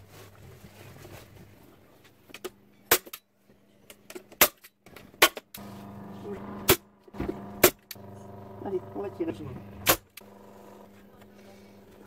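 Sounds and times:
steady low hum: 5.6 - 12.0.

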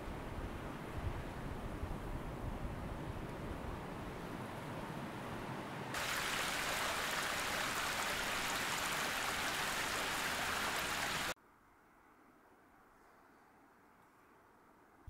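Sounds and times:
stream water rushing: 5.9 - 11.4.

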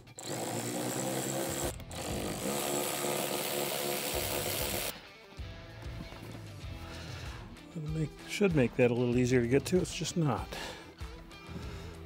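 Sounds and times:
power drill running: 0.0 - 4.9.

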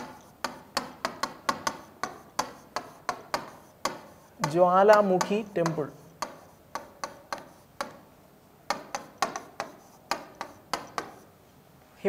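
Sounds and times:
marker tapping on whiteboard: 0.0 - 11.3.

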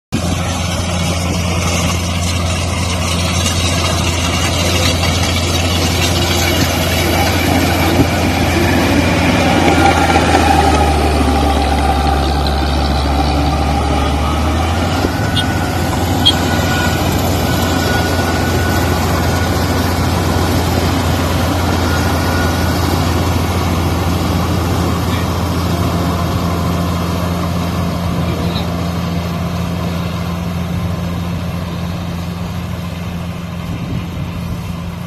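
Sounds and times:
combine harvester engine drone: 0.1 - 35.0.

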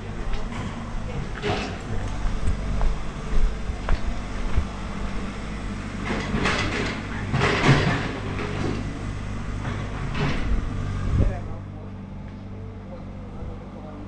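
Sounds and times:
motor vehicle hum: 0.0 - 14.0.

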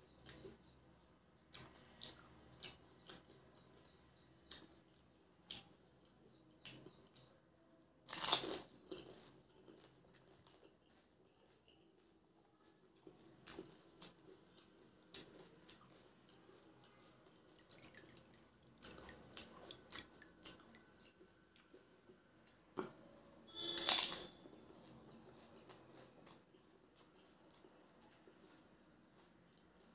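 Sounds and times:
chewing with clicks: 0.0 - 7.4, 8.1 - 23.0, 23.6 - 29.9
crisp shell crunching: 23.6 - 24.4.

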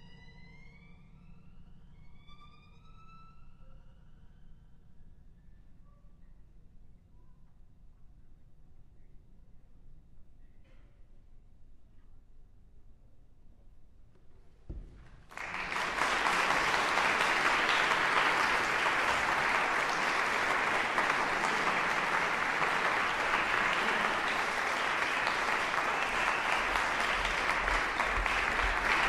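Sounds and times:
audience applauding: 15.1 - 29.0.

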